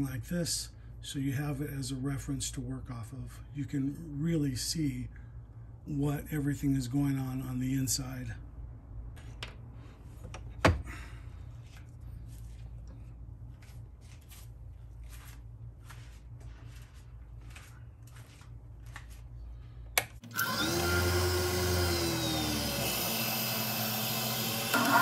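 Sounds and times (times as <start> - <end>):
lathe motor whirring: 20.2 - 25.0.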